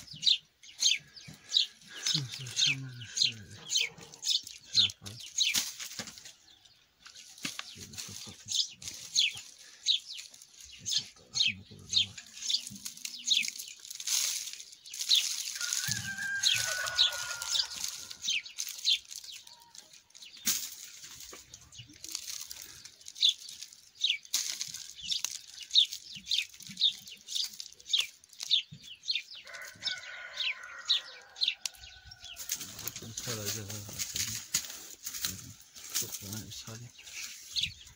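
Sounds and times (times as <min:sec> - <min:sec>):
small birds chirping: 0:00.0 - 0:37.9
rooster crowing: 0:15.6 - 0:18.1, 0:29.4 - 0:31.8.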